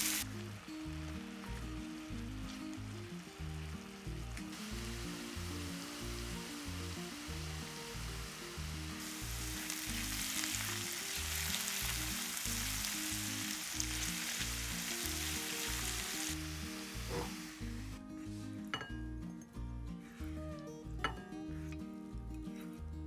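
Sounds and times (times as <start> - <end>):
mushrooms sizzling in a frying pan: 0.0 - 18.0.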